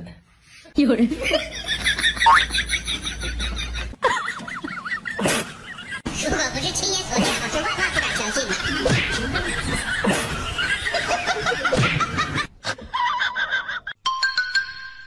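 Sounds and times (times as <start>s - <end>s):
people laughing and snickering: 1.1s - 6.1s, 7.1s - 14.0s
people talking: 6.1s - 9.8s.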